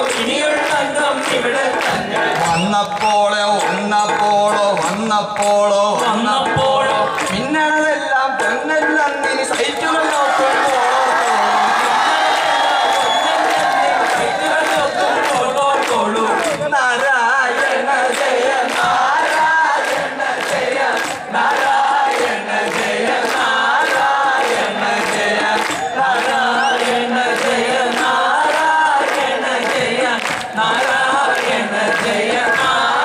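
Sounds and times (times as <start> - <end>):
drum beat: 0.0 - 33.0
men singing together: 0.0 - 33.0
crowd cheering: 9.5 - 33.0.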